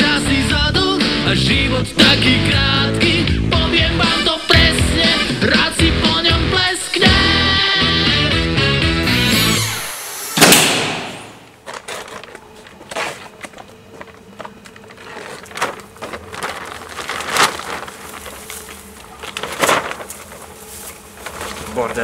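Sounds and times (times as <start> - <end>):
loud bang: 9.0 - 11.5
small cracks and rustles: 11.6 - 22.0.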